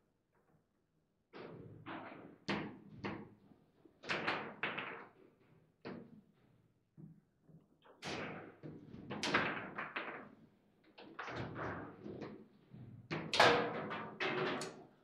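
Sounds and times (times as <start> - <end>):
table football clacks and thuds: 4.0 - 5.2.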